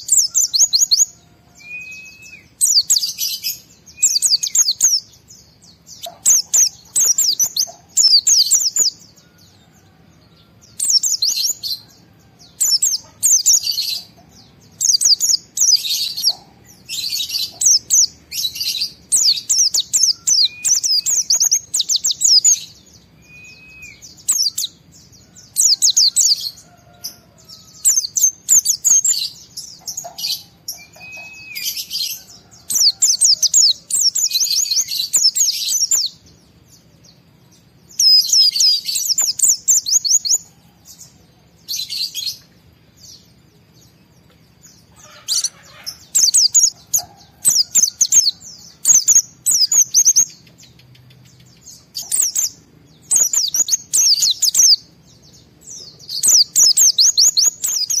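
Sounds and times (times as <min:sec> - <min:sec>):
bird twittering: 0:00.0 - 0:09.7, 0:10.6 - 0:36.3, 0:37.9 - 0:40.6, 0:44.7 - 0:54.9, 0:55.6 - 0:58.0
bird slurred whistle: 0:01.6 - 0:03.1, 0:23.2 - 0:24.6, 0:30.8 - 0:31.8.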